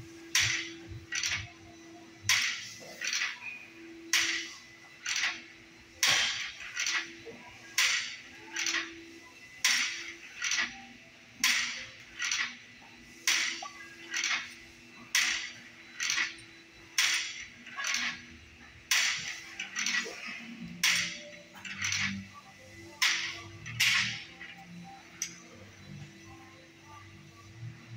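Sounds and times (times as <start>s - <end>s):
weight-stack machine bursts: 4.1s - 25.6s.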